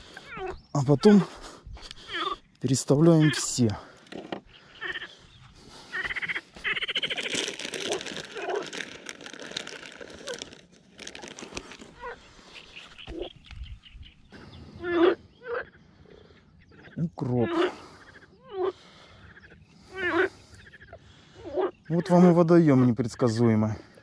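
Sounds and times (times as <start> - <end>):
cloth rustling: 6.9 - 12.0.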